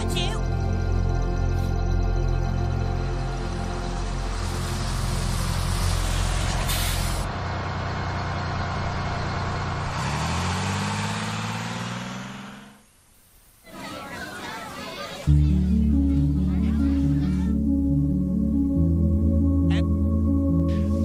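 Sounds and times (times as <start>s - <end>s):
bus engine running: 0.0s - 13.0s, 13.8s - 21.0s
air brakes hissing: 6.6s - 7.3s.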